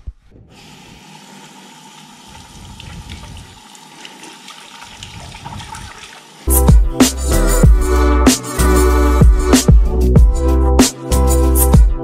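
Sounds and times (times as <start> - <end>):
tap water running into sink: 0.6 - 6.5.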